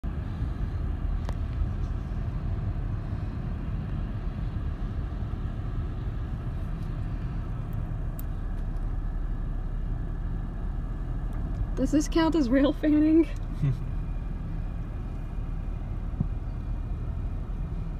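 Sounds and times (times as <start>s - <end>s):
car road and engine rumble: 0.0s - 17.9s.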